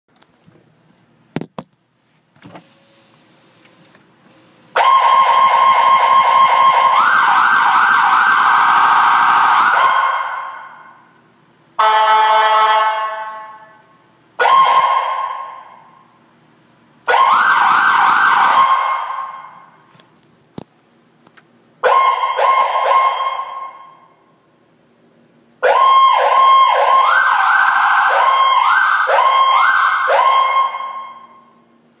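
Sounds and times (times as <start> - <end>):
ambulance siren: 4.8 - 11.0, 11.8 - 13.8, 14.4 - 16.0, 17.0 - 19.7, 21.8 - 24.2, 25.6 - 31.5.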